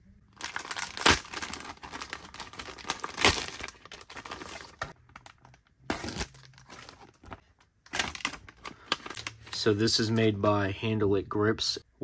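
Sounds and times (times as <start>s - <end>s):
plastic tearing: 0.4s - 9.7s
plastic mailer crinkling: 0.4s - 9.8s.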